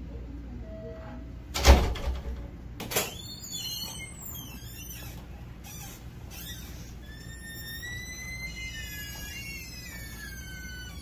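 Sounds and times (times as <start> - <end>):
faint high squeaking: 3.0 - 11.0.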